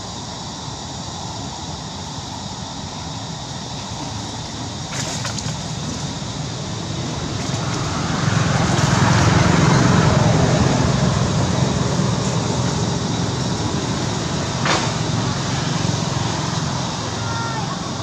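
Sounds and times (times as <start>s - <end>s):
vehicle passing rumble: 3.9s - 18.0s.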